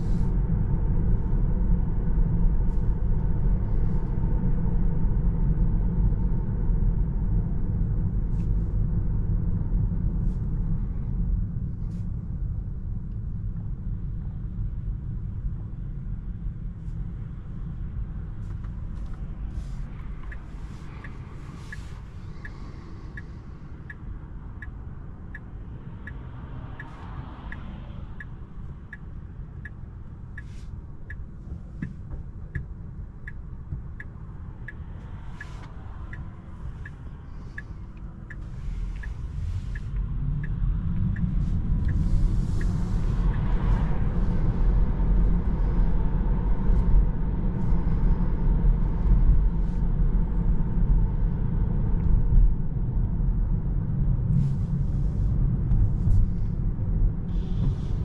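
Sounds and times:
tyre and road noise: 15.6s - 58.0s
turn signal ticking: 18.4s - 44.9s.

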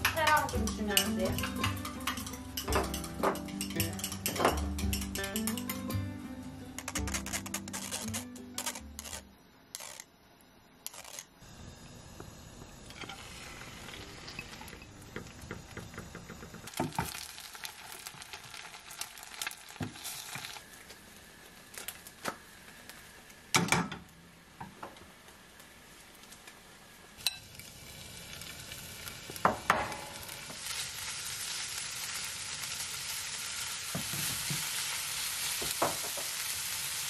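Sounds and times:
pan and utensils knocking: 0.0s - 6.0s
egg sizzling in a frying pan: 12.0s - 23.5s, 25.6s - 37.0s.

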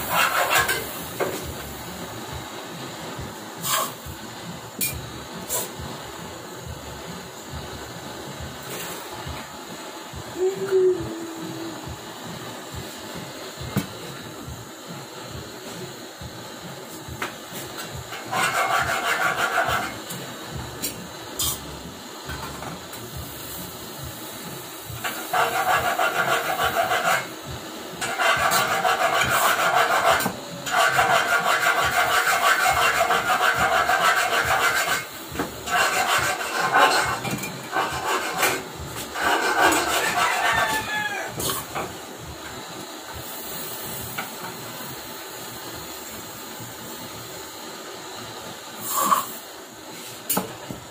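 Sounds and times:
gas torch flame hissing: 0.0s - 50.9s
rasping scraping: 39.2s - 40.6s.

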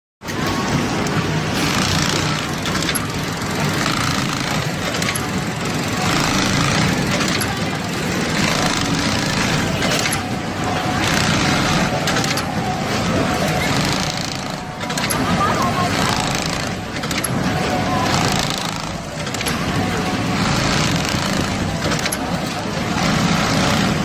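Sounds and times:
sewing machine clattering: 0.3s - 24.0s.

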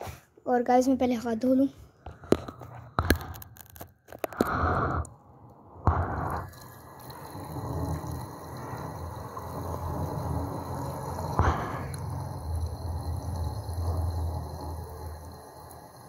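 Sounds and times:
sharp clicks and knocks: 2.1s - 4.6s.

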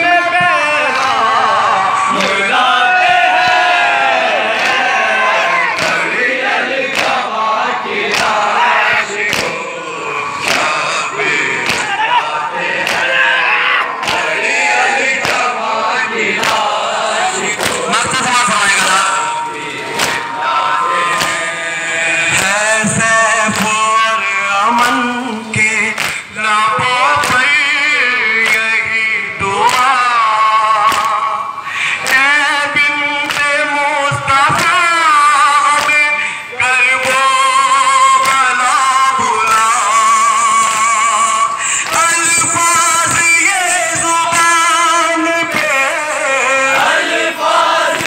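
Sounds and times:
men chanting a lament: 0.0s - 48.0s
chest-beating slaps: 5.8s - 6.0s, 6.9s - 7.2s, 8.1s - 8.4s, 9.3s - 9.6s, 10.4s - 10.8s, 11.6s - 12.0s, 12.8s - 13.2s, 14.0s - 14.4s, 15.2s - 15.5s, 16.4s - 16.8s, 17.5s - 19.1s, 19.9s - 20.3s, 21.2s - 21.5s, 26.0s - 26.2s, 30.9s - 31.2s.

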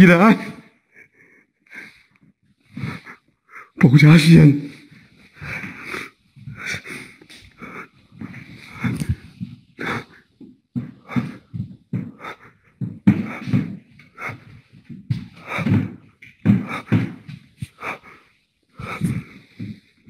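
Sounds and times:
man making breathy vocal sounds: 16.5s - 19.8s.

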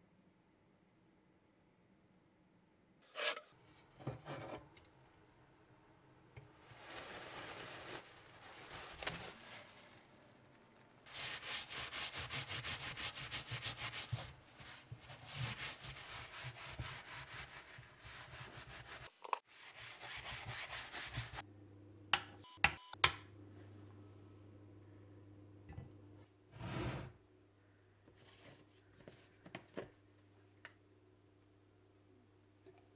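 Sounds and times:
paper towel rubbing on metal: 11.1s - 21.4s.

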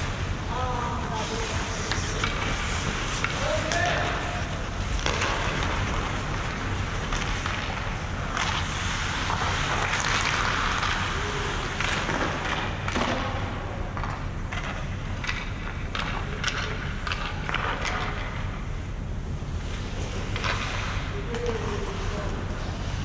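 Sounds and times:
skates scraping on ice: 1.2s - 13.2s
hockey sticks and pucks clacking: 1.8s - 18.4s, 19.6s - 23.0s.

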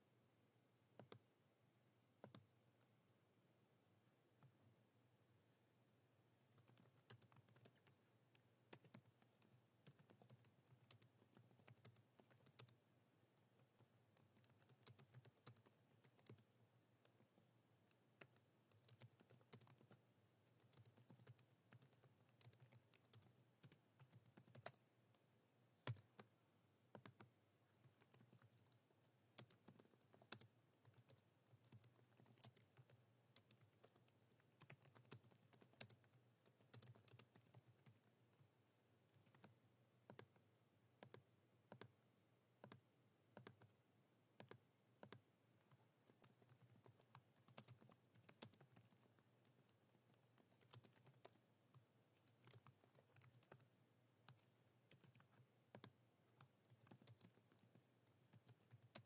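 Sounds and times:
typing on computer keyboard: 1.0s - 1.2s, 2.2s - 2.4s, 6.5s - 12.8s, 13.4s - 25.2s, 25.8s - 26.3s, 26.9s - 38.4s, 39.2s - 40.4s, 41.0s - 41.9s, 43.4s - 43.7s, 44.4s - 59.0s.

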